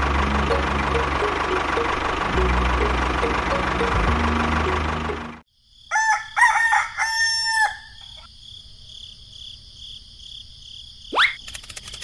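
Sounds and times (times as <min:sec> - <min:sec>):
rooster crowing: 0:05.9 - 0:08.3.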